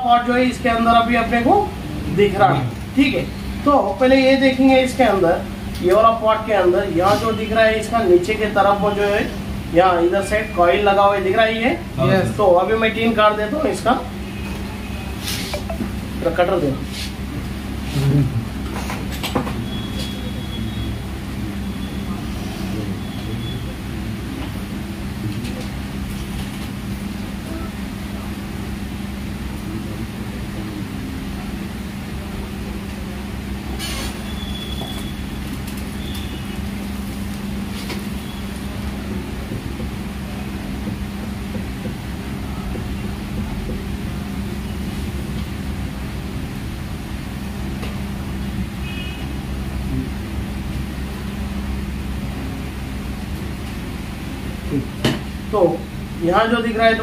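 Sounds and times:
steady low hum: 0.0s - 57.0s
motor humming: 11.8s - 12.7s.

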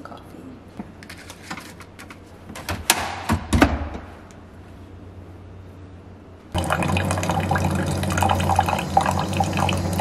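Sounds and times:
coffee brewer humming: 6.5s - 10.0s.

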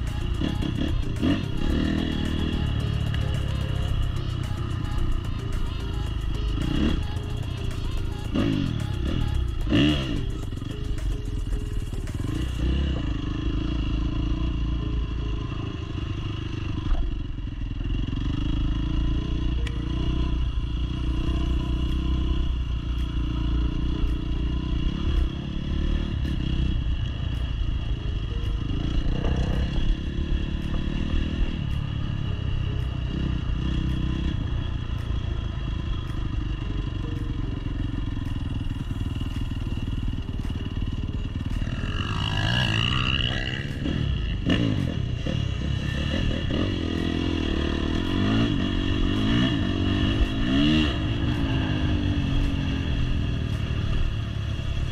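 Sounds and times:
dirt bike engine revving: 0.0s - 14.8s, 17.8s - 54.9s.

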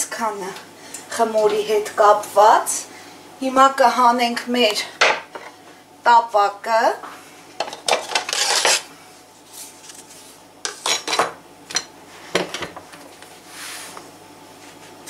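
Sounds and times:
metal cookware clattering: 10.7s - 11.9s.

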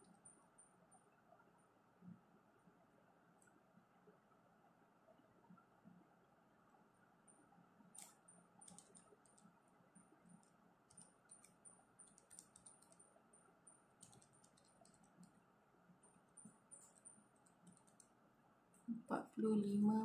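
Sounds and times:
calculator keys clicking: 8.0s - 9.5s, 10.4s - 13.1s, 14.0s - 15.3s.

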